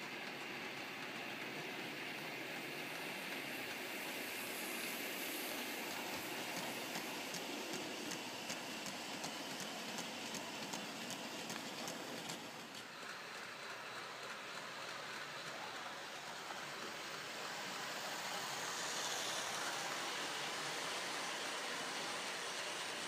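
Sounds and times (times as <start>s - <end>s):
model locomotive motor humming: 0.0s - 23.0s
wagon wheels clicking on rail joints: 6.5s - 13.3s.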